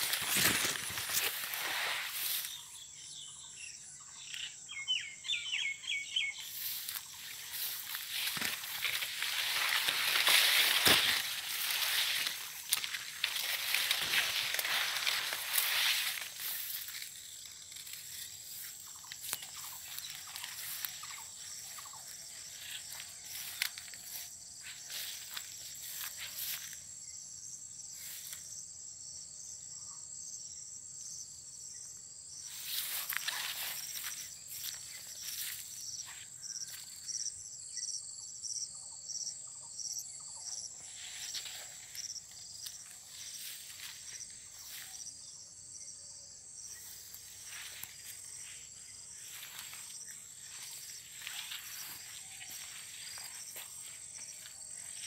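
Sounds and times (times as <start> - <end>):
insect high thin buzz: 0.0 - 2.7, 6.5 - 26.8
insect call pulsing: 0.0 - 55.0.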